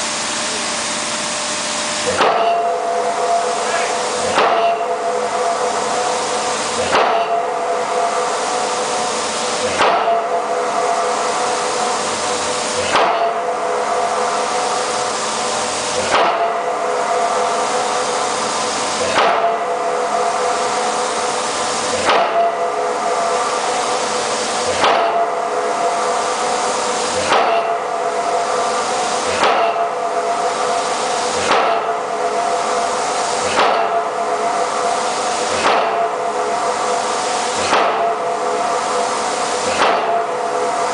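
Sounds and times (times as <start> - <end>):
steel pipe ringing: 2.0 - 40.9
pile hammer blows on steel pipe: 2.1 - 40.9.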